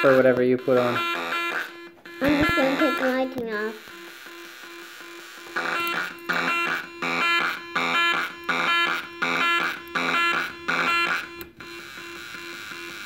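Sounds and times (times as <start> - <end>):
buzzy electronic drum beat: 0.0 - 4.1, 5.5 - 11.2.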